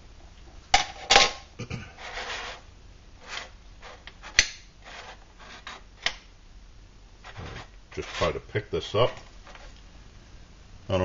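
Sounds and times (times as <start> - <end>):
gloved hand rubbing metal stove: 2.0 - 5.9, 7.2 - 8.5.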